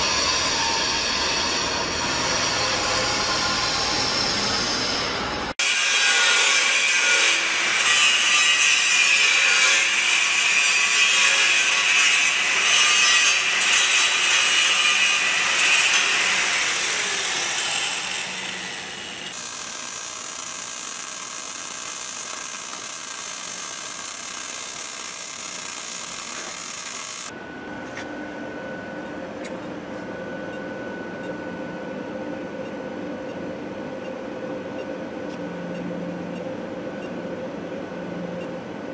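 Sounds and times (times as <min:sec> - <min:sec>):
rasping power tool: 0:05.6 - 0:27.3
steady machine hum: 0:16.6 - 0:34.0.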